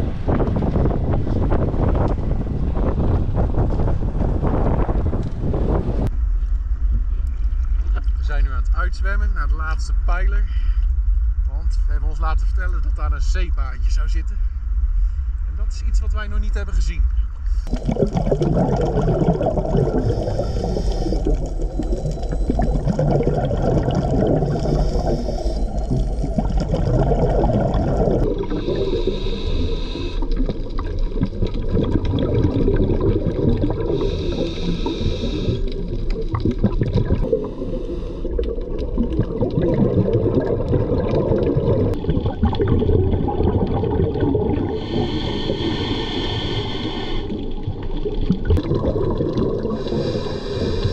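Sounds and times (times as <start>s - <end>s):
crackling gurgling underwater rumble: 0.0s - 50.9s
scuba regulator breaths: 10.4s - 11.3s, 17.3s - 18.1s, 19.6s - 30.7s, 33.8s - 36.1s, 37.2s - 38.6s, 44.6s - 47.7s, 49.6s - 50.9s
exhaled bubbles bursting: 17.5s - 50.9s.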